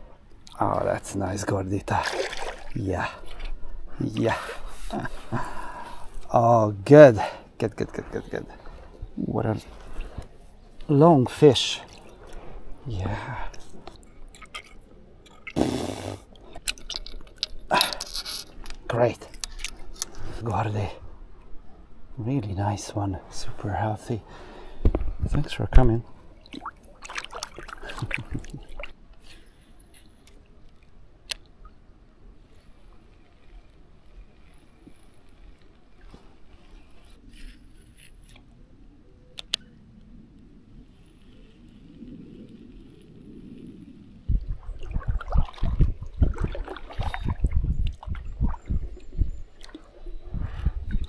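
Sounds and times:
water splashing and dripping: 1.9 - 3.2, 13.6 - 15.6, 16.3 - 18.0, 26.4 - 29.0, 44.3 - 49.9.

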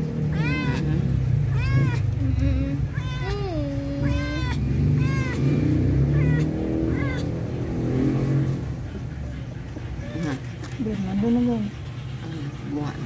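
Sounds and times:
steady low hum: 0.0 - 13.0
kitten mewing: 0.2 - 7.9.

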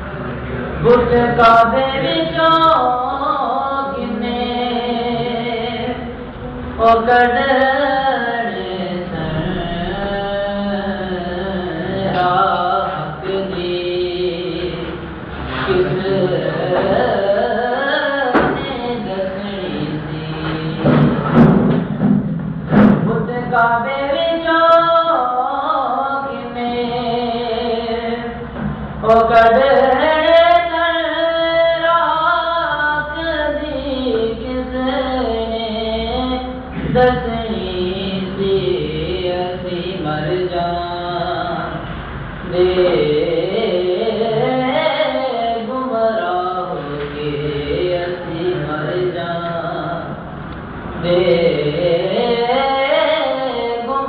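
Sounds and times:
low electrical hum: 0.0 - 54.0
person singing long held notes: 0.8 - 21.4.

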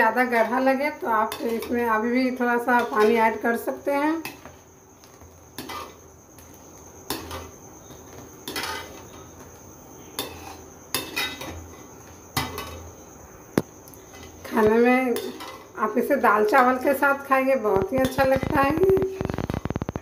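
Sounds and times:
metal ladle scraping a pot: 5.6 - 6.0, 8.4 - 9.2.

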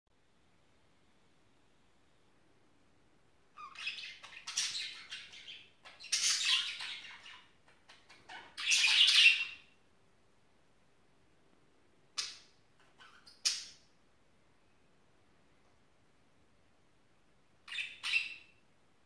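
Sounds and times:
budgerigars chattering and squawking: 3.6 - 9.6, 17.7 - 18.5.

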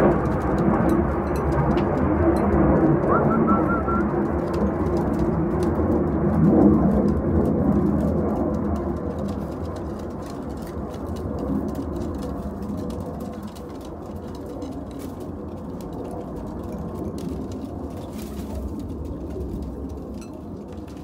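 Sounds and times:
steady rumbling noise: 0.0 - 21.0
pigeons cooing: 1.0 - 8.2.

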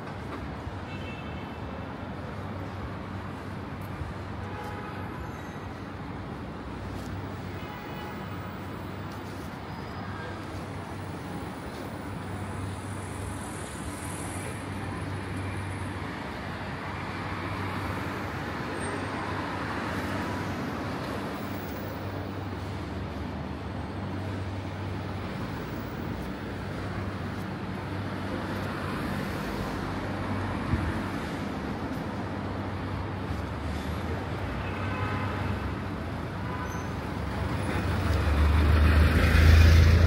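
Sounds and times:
street traffic: 0.0 - 40.0.

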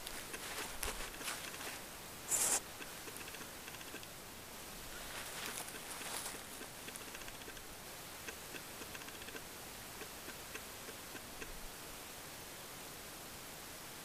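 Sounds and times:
claws scratching soil: 0.0 - 4.0, 4.9 - 7.5
steady hiss: 0.0 - 14.0.

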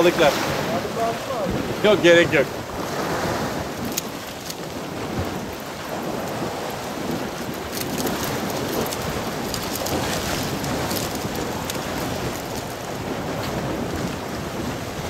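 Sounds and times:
sea waves washing: 0.0 - 15.0
wind rumbling on microphone: 0.0 - 15.0
faint crackles: 3.7 - 14.2.

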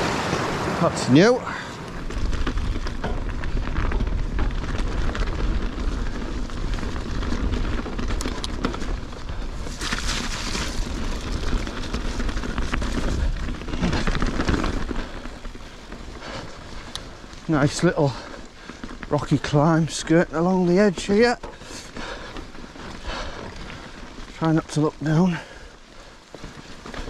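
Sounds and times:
bike clicks and rattles: 1.4 - 27.0.

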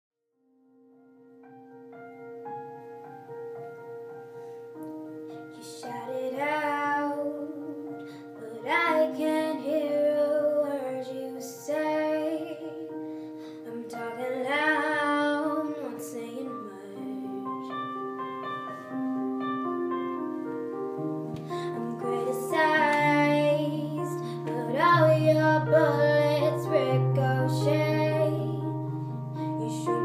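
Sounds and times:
keyboard chords: 0.8 - 30.0
girl singing: 5.4 - 17.8, 21.4 - 30.0.

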